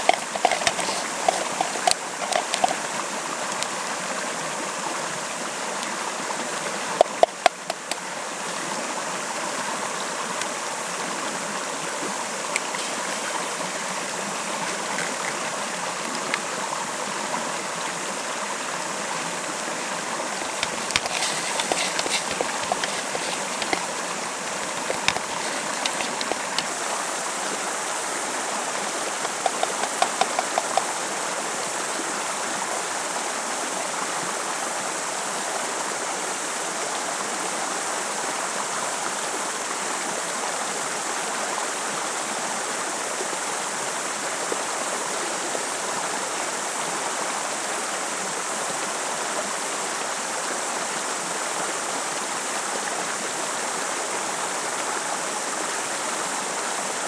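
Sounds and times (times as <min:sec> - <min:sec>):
stream rushing over stones: 0:00.0 - 0:57.0
light clicks and knocks: 0:29.2 - 0:30.8.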